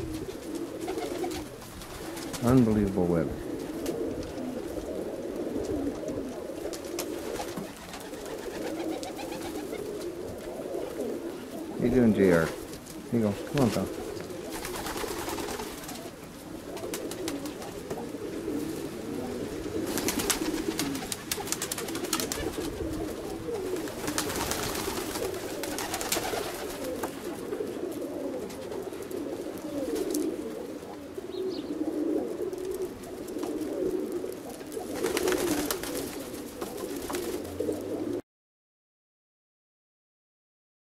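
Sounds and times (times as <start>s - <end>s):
pigeons cooing: 0.0s - 38.2s.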